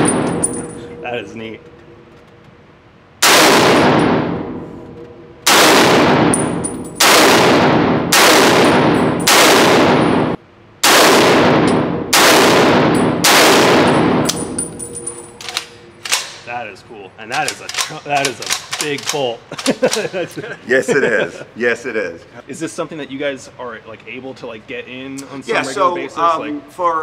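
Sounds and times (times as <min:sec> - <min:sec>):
rifle shots echoing indoors: 0:00.0 - 0:00.8, 0:03.1 - 0:16.5
light metallic clinks: 0:14.3 - 0:15.8.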